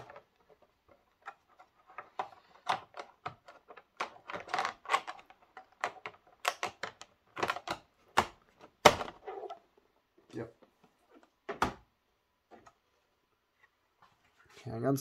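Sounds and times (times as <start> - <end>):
plastic box clicks and knocks: 2.0 - 9.2, 11.4 - 11.9.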